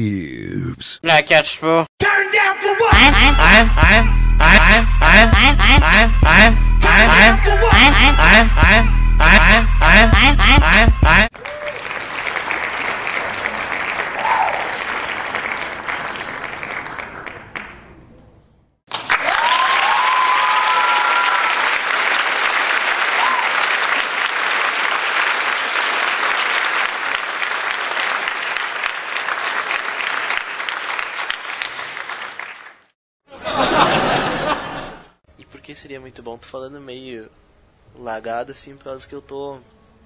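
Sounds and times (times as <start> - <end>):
crowd applauding and cheering: 11.3 - 17.8, 18.9 - 32.9.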